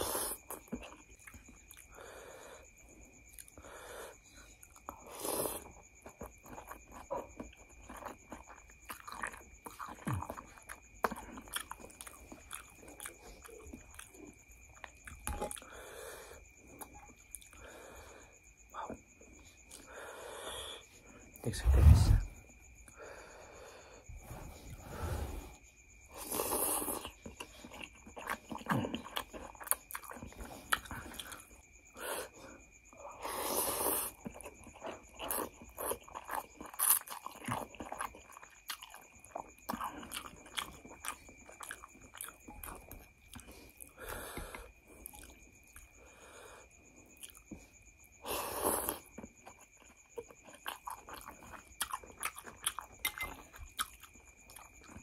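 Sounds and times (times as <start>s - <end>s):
wet chewing: 4.4s - 18.2s, 26.2s - 32.4s, 33.8s - 55.0s
faint high whine: 20.2s - 25.6s.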